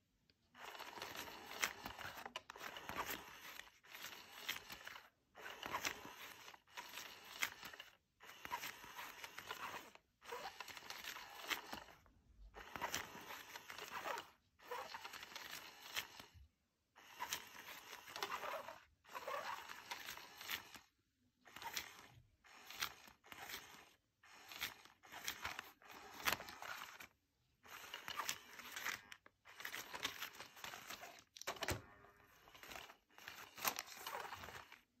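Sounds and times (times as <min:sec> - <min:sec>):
crinkly rustling of cat toy: 0:21.5 - 0:35.0.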